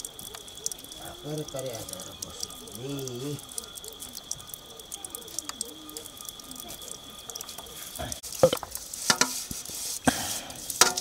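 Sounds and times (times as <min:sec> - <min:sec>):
metal plates and bowls clinking: 0:08.4 - 0:09.5, 0:10.7 - 0:11.0.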